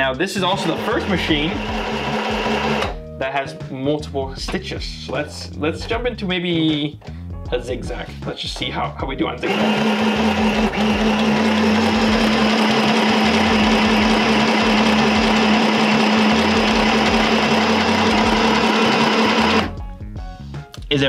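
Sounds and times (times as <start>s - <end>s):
sewing machine humming: 0.6s - 3.0s, 9.5s - 19.7s.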